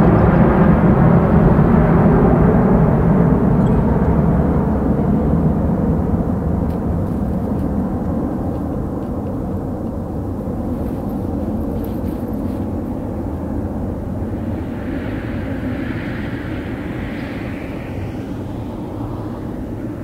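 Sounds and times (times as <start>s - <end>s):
jet engines rumbling: 0.0s - 20.0s
high hiss: 10.3s - 20.0s.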